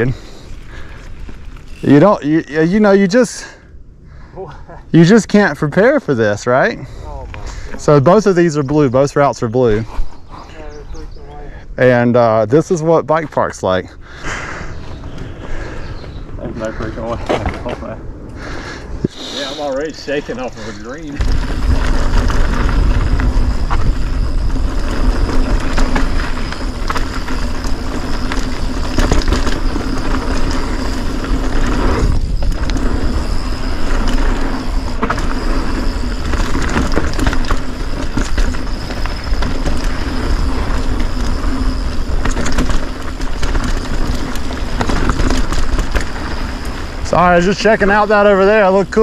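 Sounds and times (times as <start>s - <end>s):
bike rattling over bumps: 0.0s - 3.6s, 10.6s - 49.0s
bike tyre noise on dirt: 0.0s - 49.0s
wind on microphone: 20.5s - 47.4s.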